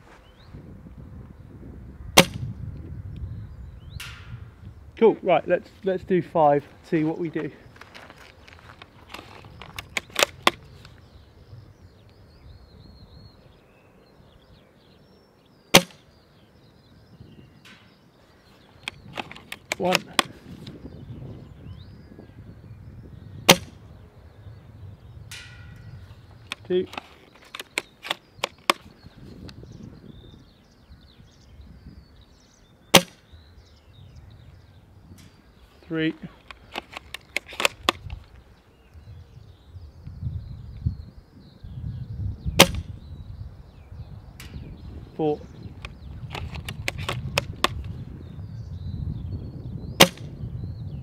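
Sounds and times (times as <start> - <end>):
airsoft rifle shot: 2.2 - 2.5, 15.7 - 16.0, 23.5 - 23.8, 32.9 - 33.2, 42.6 - 42.9, 50.0 - 50.3
quick clicks: 8.4 - 11.0, 18.8 - 20.8, 26.4 - 29.6, 36.4 - 38.4, 45.8 - 48.0
faint bird chirps: 9.3 - 19.1, 19.8 - 36.7, 38.1 - 46.8, 47.8 - 51.0.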